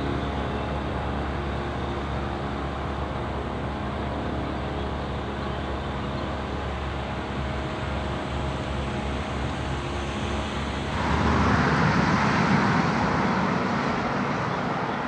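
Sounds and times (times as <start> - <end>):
river water rushing: 10.9 - 15.0.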